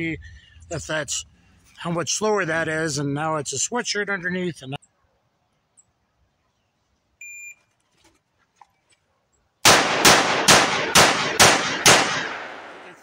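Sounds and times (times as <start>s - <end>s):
revolver shots: 9.7s - 13.0s.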